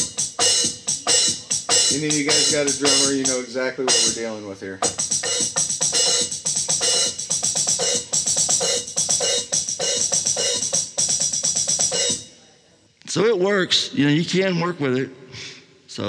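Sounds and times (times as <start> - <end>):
electronic drum kit groove: 0.0 - 12.4
hi-hat and cymbal: 0.0 - 12.4.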